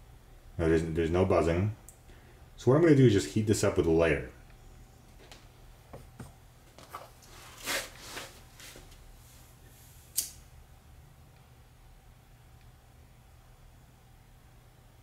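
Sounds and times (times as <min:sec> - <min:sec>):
faint low hum: 0:00.0 - 0:15.0
wires rustling: 0:06.1 - 0:10.4.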